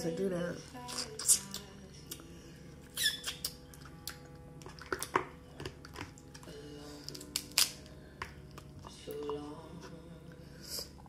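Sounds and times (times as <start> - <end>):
crab shells cracking: 7.1 - 8.7.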